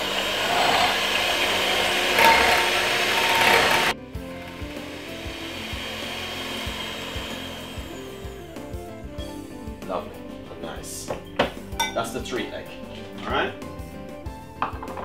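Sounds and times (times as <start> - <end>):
electric hand mixer whisking: 0.0 - 9.2.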